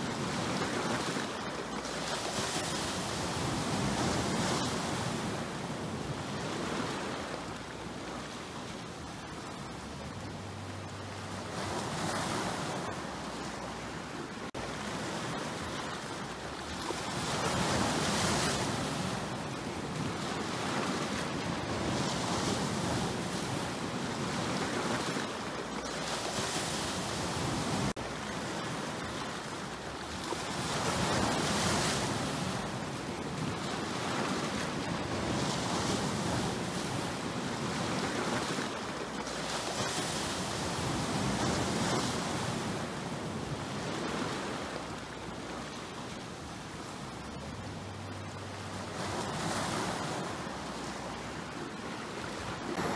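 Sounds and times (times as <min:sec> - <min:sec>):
wind on microphone: 0:00.0 - 0:52.9
waves breaking on rocks: 0:11.3 - 0:47.3, 0:48.7 - 0:52.9.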